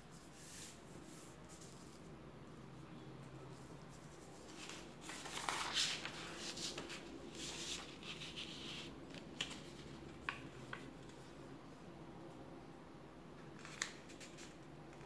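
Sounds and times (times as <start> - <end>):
paper rustling and folding: 3.5 - 11.4, 13.6 - 15.0.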